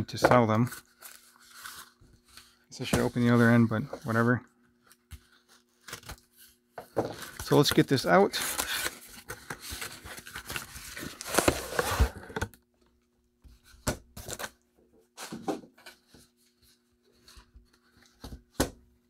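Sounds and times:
cardboard scraping and rustling: 5.2s - 12.6s.

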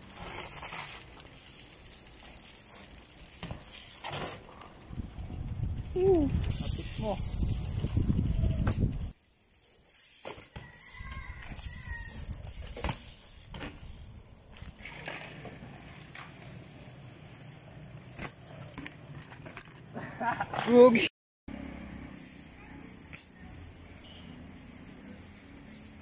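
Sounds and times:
bikes landing with knocks: 0.0s - 4.9s, 7.8s - 9.1s, 10.0s - 16.7s, 18.0s - 21.0s
bike tyres rolling on concrete: 0.0s - 26.0s.

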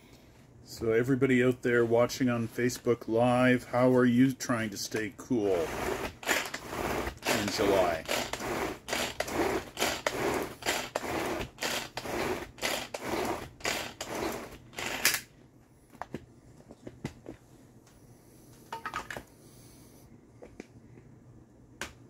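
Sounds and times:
pull-cord chopper whirring: 5.5s - 15.2s.

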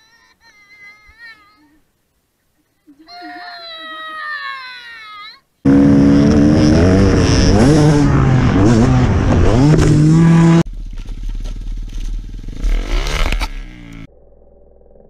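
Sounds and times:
dirt bike engine revving: 5.6s - 14.1s.

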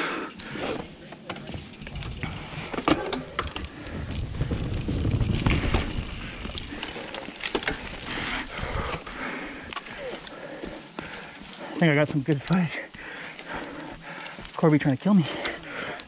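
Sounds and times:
bike clicks and rattles: 0.2s - 16.0s
low rumble: 1.9s - 9.2s.

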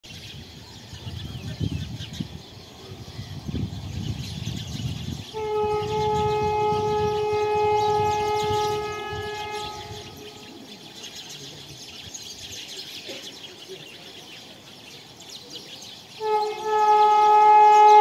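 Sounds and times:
low uneven rumble: 0.4s - 12.5s
train horn blast: 5.0s - 10.6s, 16.1s - 18.0s.

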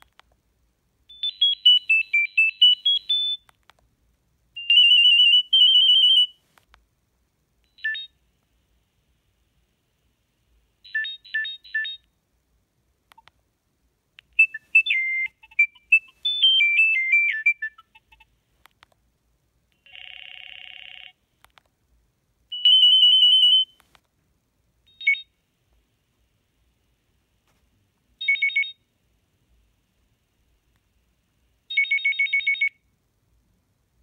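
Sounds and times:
phone ringtone beeps and melodies: 4.6s - 6.4s, 14.4s - 18.3s, 22.6s - 23.7s.

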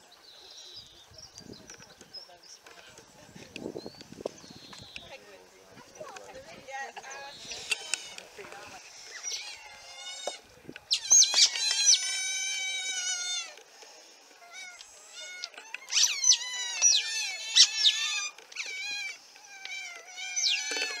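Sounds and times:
otters squealing and chirping: 7.1s - 8.2s, 8.9s - 13.6s, 14.4s - 21.0s.

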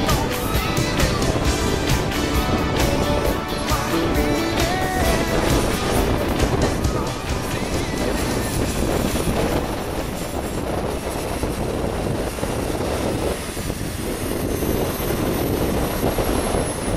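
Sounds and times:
model jet turbine running: 4.8s - 16.9s.

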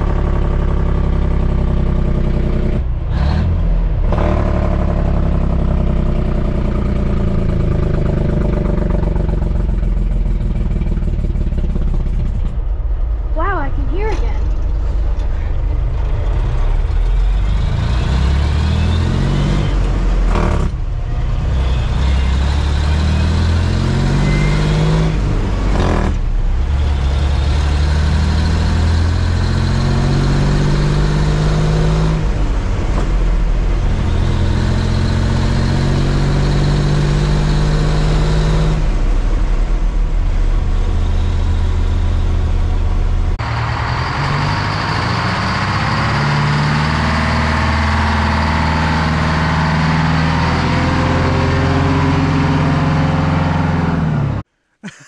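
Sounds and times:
truck idling: 0.0s - 22.6s, 38.8s - 55.0s
diesel truck engine shifting gears: 0.0s - 54.5s.

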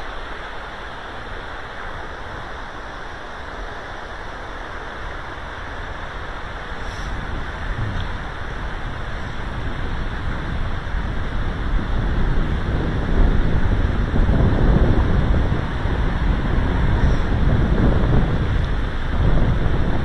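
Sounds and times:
flowing river water: 0.0s - 19.9s
wind buffeting microphone: 5.0s - 20.0s.

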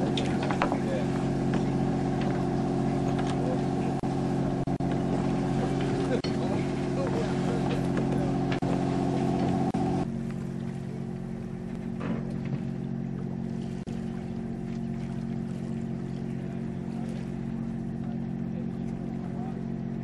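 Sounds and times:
boat engine humming: 0.0s - 20.0s.

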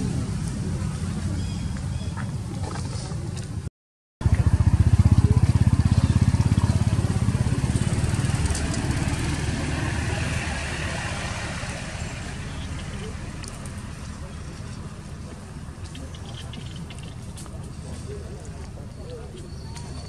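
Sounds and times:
small engine running: 4.2s - 12.6s.

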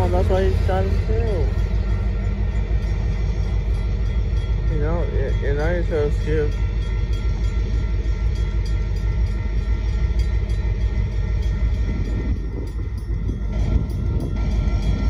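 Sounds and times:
freight train wheels rumbling: 0.0s - 15.0s.

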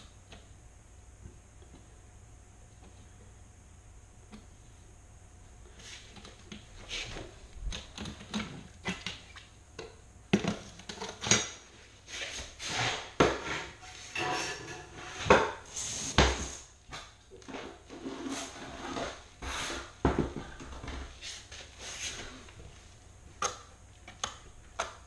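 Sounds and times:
metal grate clinking and scraping: 13.8s - 15.2s.

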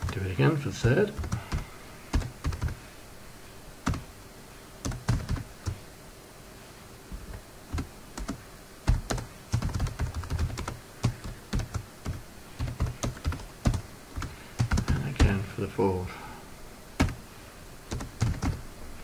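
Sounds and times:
typing on computer keyboard: 1.2s - 2.8s, 4.8s - 5.8s, 7.7s - 15.3s, 17.9s - 18.6s.

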